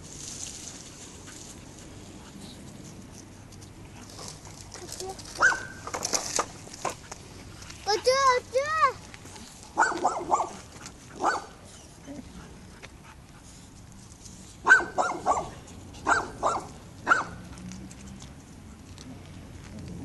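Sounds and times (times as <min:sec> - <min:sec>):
dog barking: 0:05.4 - 0:05.8, 0:09.8 - 0:10.6, 0:11.2 - 0:11.5, 0:14.6 - 0:17.4.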